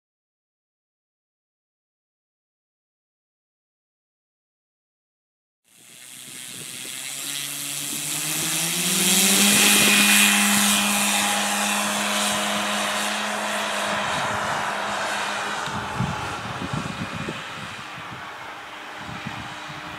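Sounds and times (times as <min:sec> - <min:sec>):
electric model plane motor whine: 0:05.7 - 0:19.9.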